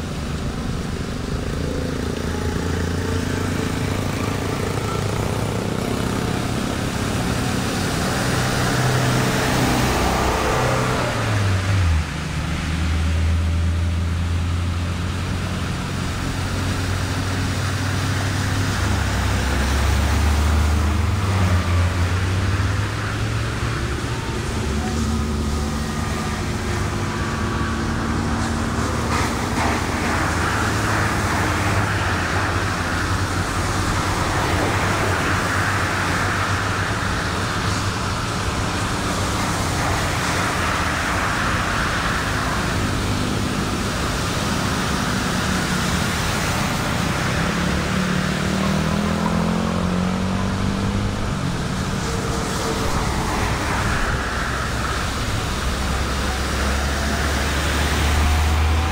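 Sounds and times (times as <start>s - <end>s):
floodwater rushing: 0.0s - 58.9s
vehicle engines: 0.0s - 58.9s
tyres hissing through water: 22.2s - 58.9s.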